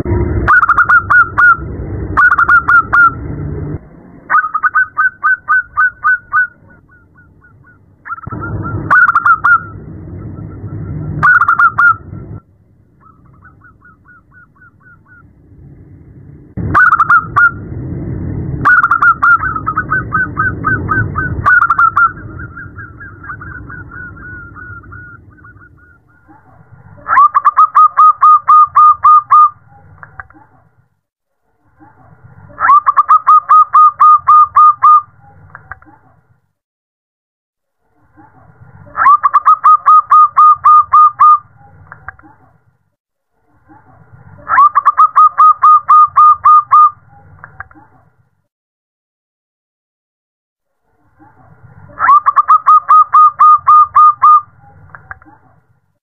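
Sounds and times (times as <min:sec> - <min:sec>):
dove cooing: 0:00.0 - 0:03.2, 0:04.3 - 0:10.6, 0:11.2 - 0:12.4, 0:13.0 - 0:15.3, 0:18.7 - 0:26.3, 0:27.0 - 0:29.6, 0:32.6 - 0:35.1, 0:38.9 - 0:41.4, 0:44.4 - 0:47.0, 0:51.9 - 0:54.5.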